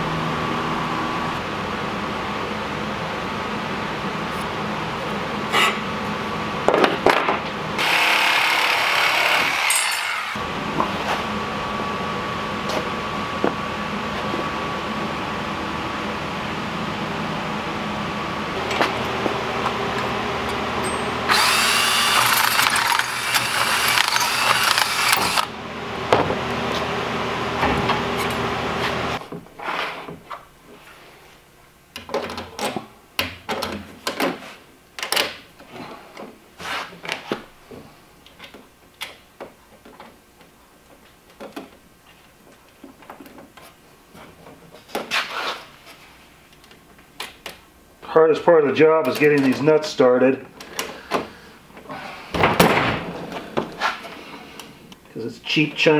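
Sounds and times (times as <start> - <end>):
power tool running: 7.8 - 10.5, 18.7 - 25.6.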